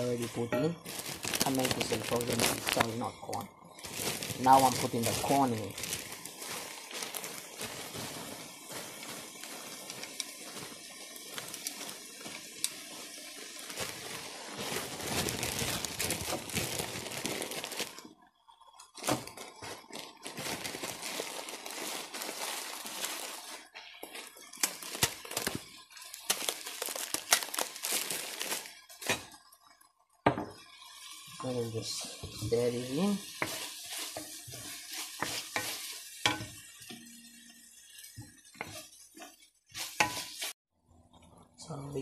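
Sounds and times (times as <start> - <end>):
corn kernels pouring into pan: 0.0 - 18.0, 19.0 - 29.4
plastic bag crinkling: 0.0 - 29.5, 30.6 - 40.6
vegetables sizzling in frying pan: 0.0 - 40.6.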